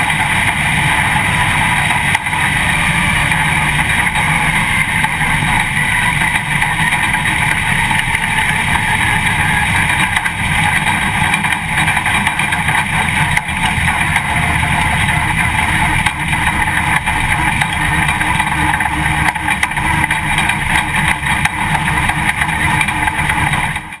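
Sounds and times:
race car engine drone: 0:00.0 - 0:24.0.

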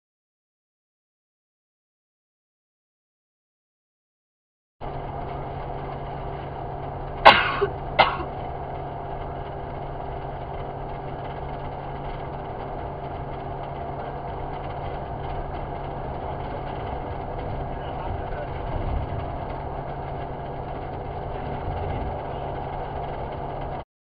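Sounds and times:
car cabin road and engine noise: 0:04.8 - 0:23.8
person coughing: 0:07.3 - 0:08.3.

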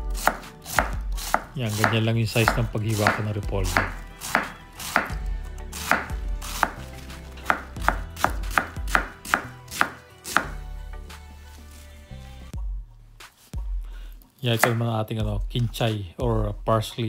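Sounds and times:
knife knocking on wooden board: 0:00.3 - 0:05.2, 0:05.9 - 0:06.8, 0:07.5 - 0:10.6.

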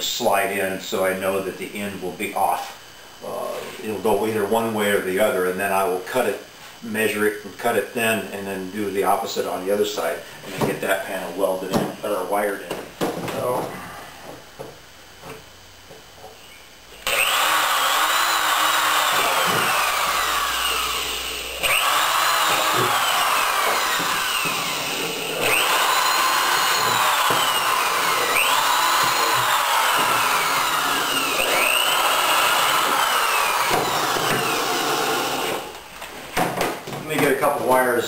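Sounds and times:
electric drill drilling wood: 0:17.0 - 0:35.9.

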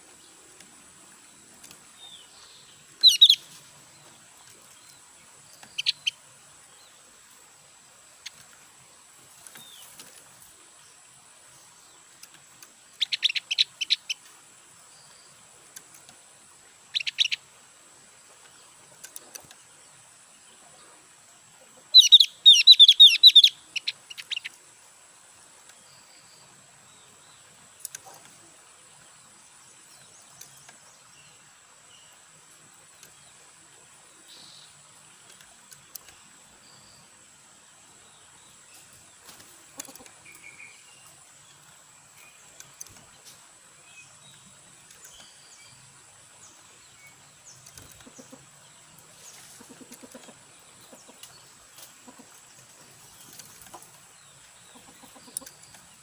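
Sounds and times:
bird high chattering calls: 0:03.0 - 0:03.5, 0:13.0 - 0:14.2, 0:16.9 - 0:17.4, 0:21.9 - 0:24.5.

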